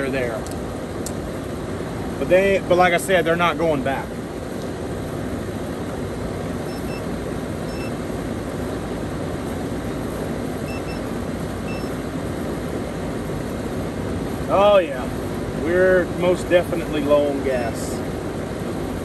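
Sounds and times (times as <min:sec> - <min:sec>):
air conditioner unit running: 0:00.0 - 0:19.0
faint electronic beeps: 0:06.7 - 0:07.1, 0:07.7 - 0:08.0, 0:10.6 - 0:11.1, 0:11.7 - 0:12.0.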